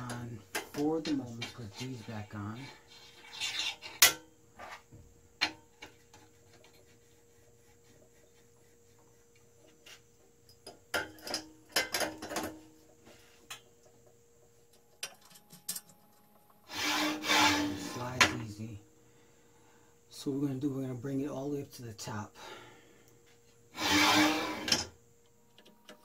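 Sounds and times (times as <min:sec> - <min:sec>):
faint steady hum: 0:00.0 - 0:26.0
metal parts clicking and clinking: 0:14.9 - 0:16.3.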